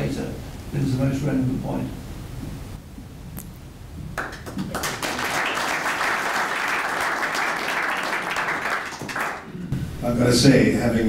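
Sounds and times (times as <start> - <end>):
audience applauding: 4.2 - 9.6.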